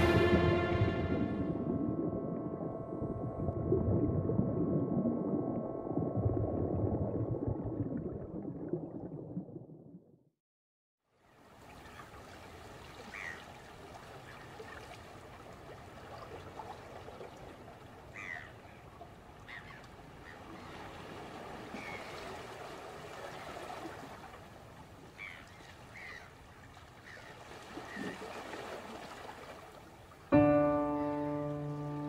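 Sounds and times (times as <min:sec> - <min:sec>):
sea water washing: 0:00.0 - 0:09.6, 0:19.0 - 0:32.0.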